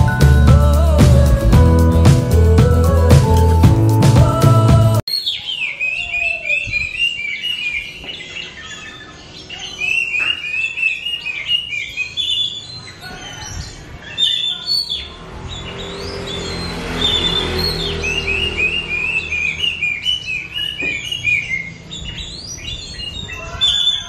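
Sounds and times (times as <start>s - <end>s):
music: 0.0s - 5.0s
bird chirping and whistling: 5.1s - 24.0s.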